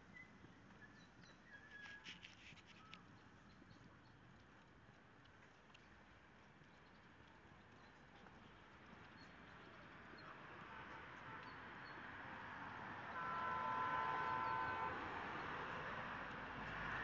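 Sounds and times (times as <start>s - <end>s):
road traffic noise: 9.3s - 17.0s
vehicle horn: 13.1s - 15.2s.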